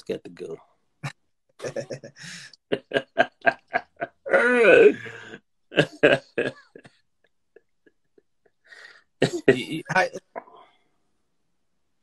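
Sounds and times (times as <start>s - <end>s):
men laughing: 1.6s - 6.9s.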